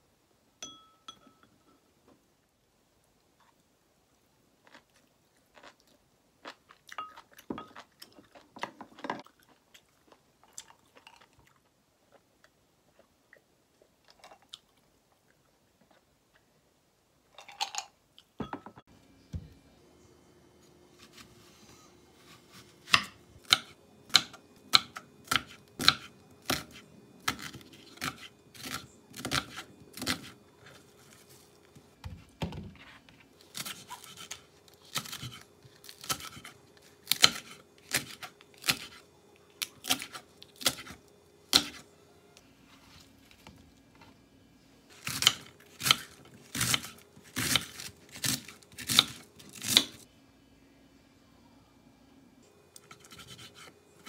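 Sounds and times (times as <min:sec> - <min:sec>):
knife chopping on wooden board: 0:22.2 - 0:30.3.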